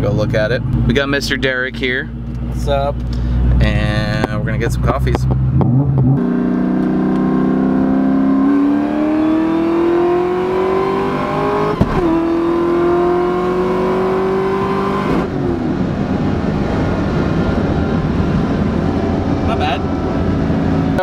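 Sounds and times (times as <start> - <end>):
car engine accelerating hard: 2.1 - 21.0.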